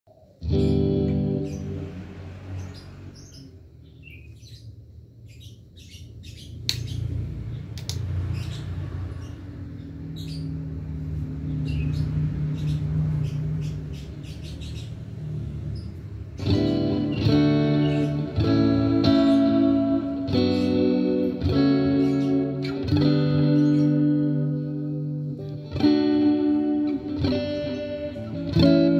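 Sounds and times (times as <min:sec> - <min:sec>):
electric guitar chords: 0:00.4 - 0:03.1, 0:16.4 - 0:28.9
guitar handling clicks: 0:07.8 - 0:08.1.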